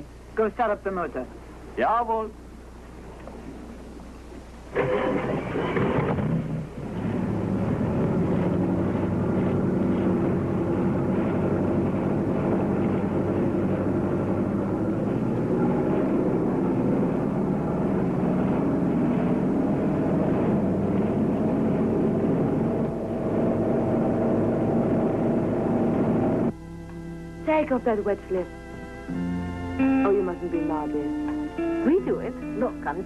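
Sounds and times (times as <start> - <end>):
boat engine droning: 0.0 - 33.0
water rushing past hull: 2.8 - 26.5.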